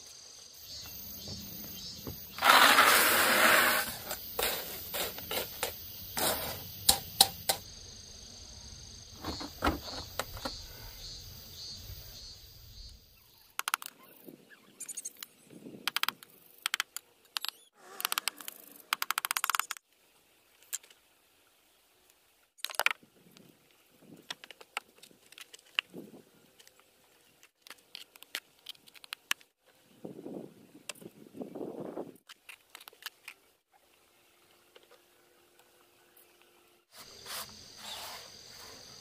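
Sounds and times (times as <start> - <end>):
concrete blocks scraping and knocking: 2.0 - 6.7
gravel pouring from bucket: 2.4 - 5.5
stones clicking and knocking: 15.9 - 19.8, 22.6 - 23.0, 24.2 - 25.9, 27.4 - 29.5.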